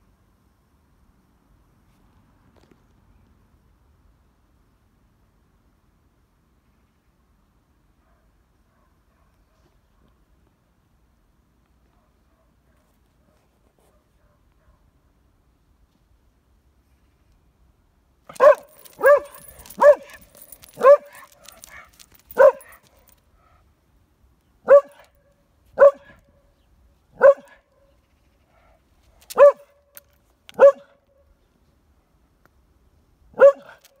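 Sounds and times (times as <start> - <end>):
dog barking: 8.0 - 9.8, 11.9 - 12.9, 13.8 - 14.9, 18.3 - 22.8, 24.6 - 25.2, 25.8 - 26.3, 27.2 - 27.7, 29.3 - 29.8, 30.6 - 31.0, 33.4 - 33.9.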